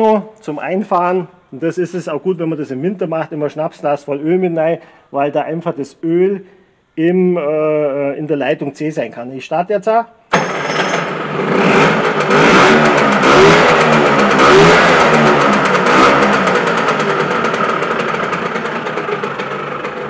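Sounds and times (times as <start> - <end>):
small two-stroke engine revving: 10.3 - 20.0.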